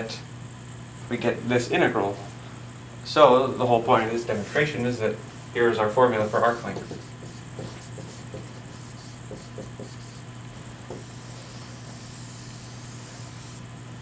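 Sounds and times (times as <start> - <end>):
steady low hum: 0.0 - 14.0
marker squeaking on whiteboard: 6.6 - 10.3, 10.9 - 13.6.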